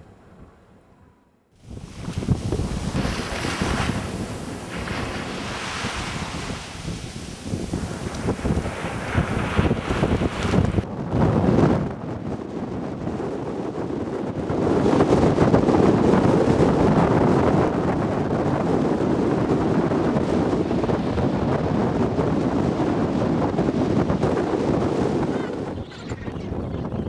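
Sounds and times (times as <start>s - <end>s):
wind buffeting microphone: 1.6s - 27.0s.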